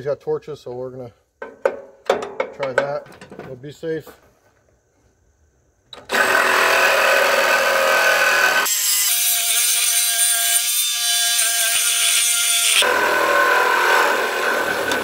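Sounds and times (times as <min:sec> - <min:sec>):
reciprocating saw cutting steel: 0:06.1 - 0:15.0.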